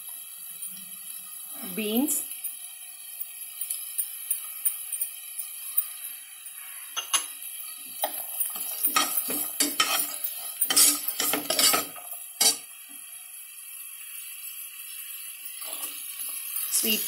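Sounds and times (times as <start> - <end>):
spoon scraping a pan: 3.6 - 12.7.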